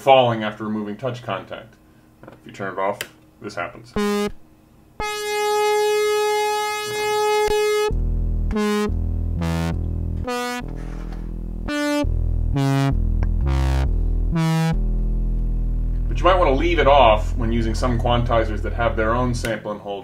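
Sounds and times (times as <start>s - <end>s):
synthesizer notes: 3.9s - 19.5s.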